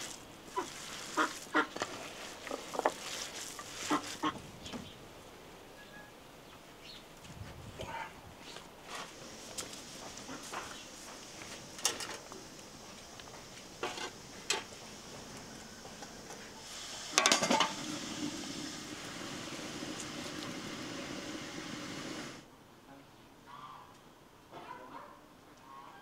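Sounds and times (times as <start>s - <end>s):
steady hiss: 0.0s - 22.5s
dishes and utensils clinking: 17.1s - 17.8s.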